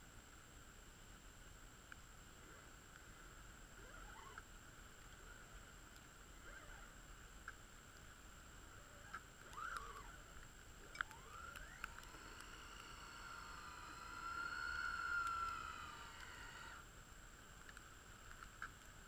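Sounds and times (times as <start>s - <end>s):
toy car motor whine: 3.8s - 4.4s, 9.0s - 16.8s.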